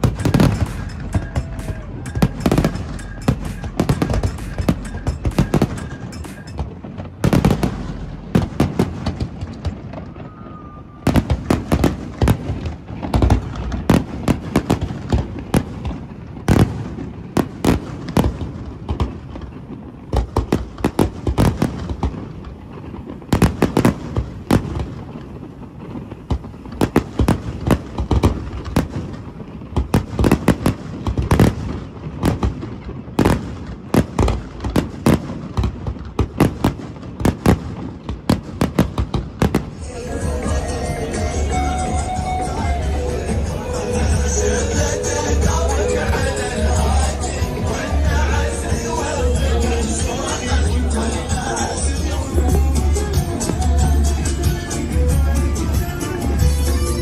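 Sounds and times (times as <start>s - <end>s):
sharp bangs and crackles: 0.0s - 40.0s.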